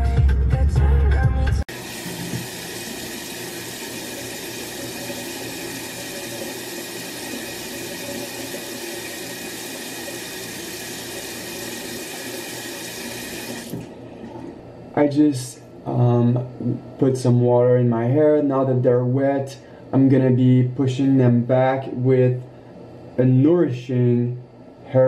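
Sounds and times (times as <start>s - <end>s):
music: 0.0s - 1.7s
bathroom tap running: 1.7s - 13.9s.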